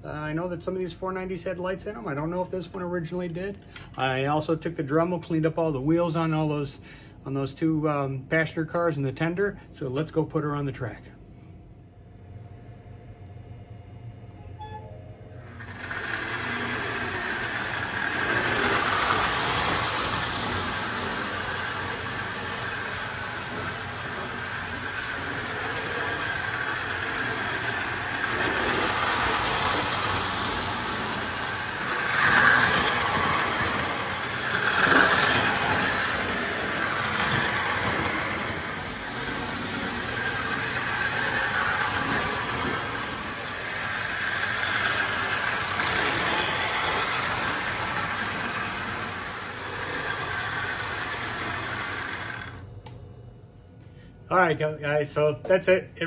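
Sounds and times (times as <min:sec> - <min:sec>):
toy train motor and wheel rumble: 0:15.4 - 0:52.7.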